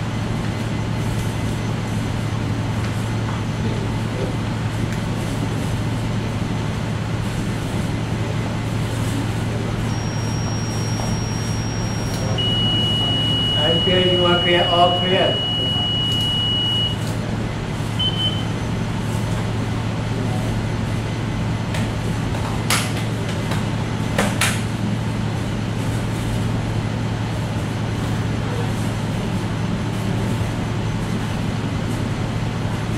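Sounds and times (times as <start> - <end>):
low hum with noisy wash: 0.0 - 32.9
defibrillator high steady tone: 9.8 - 17.1, 18.0 - 18.6
short beep: 9.9 - 17.0, 18.0 - 18.5.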